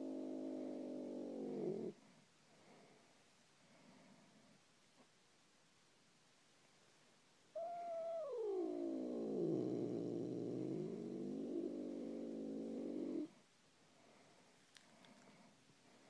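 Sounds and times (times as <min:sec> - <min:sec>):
cat yowling angrily: 0:07.6 - 0:09.6.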